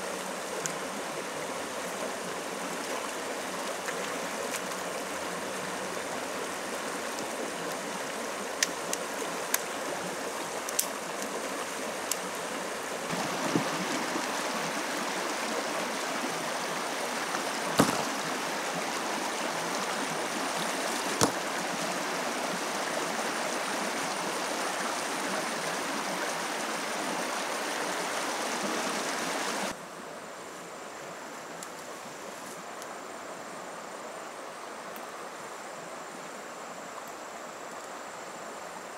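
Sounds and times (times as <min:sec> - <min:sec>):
stream rushing over stones: 0:00.0 - 0:29.8
sharp knocks: 0:17.8 - 0:18.1, 0:21.2 - 0:21.4.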